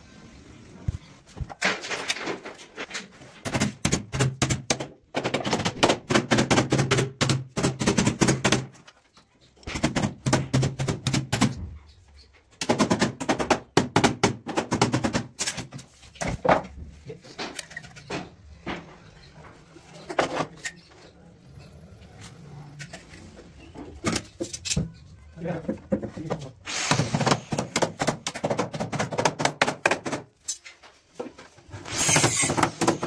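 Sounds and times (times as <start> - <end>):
knocking and clattering on wood: 12.6 - 19.1, 25.6 - 26.5, 27.3 - 30.4.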